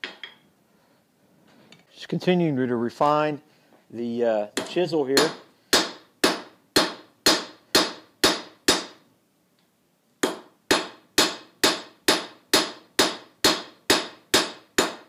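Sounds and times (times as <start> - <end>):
hammer striking metal on anvil: 4.6 - 9.0, 10.2 - 15.0.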